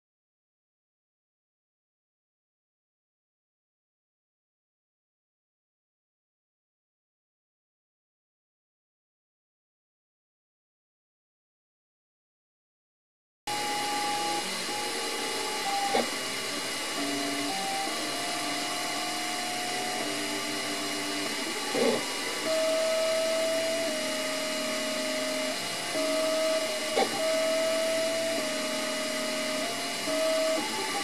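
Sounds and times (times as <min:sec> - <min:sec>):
constant high hum: 0:13.5 - 0:31.0
stepper motors whining: 0:13.5 - 0:31.0.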